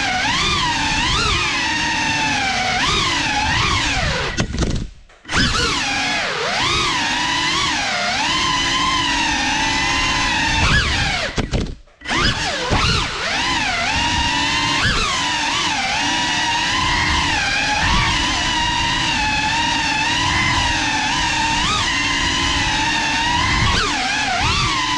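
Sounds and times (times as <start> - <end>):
drone motors whining: 0.0 - 24.9.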